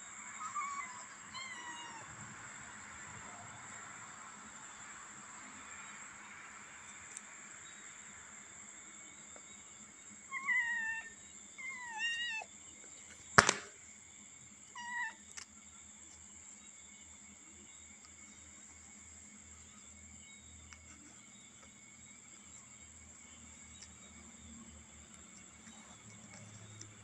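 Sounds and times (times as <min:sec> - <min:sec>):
kitten mewing: 0:10.3 - 0:12.5, 0:14.8 - 0:15.2
sharp click: 0:13.4 - 0:13.7.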